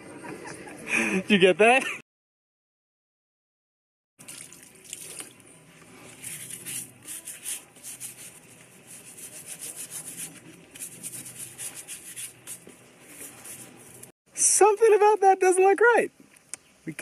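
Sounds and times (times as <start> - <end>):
hose water splashing on concrete: 4.2 - 5.4
hands scrubbing sandal: 4.9 - 14.1.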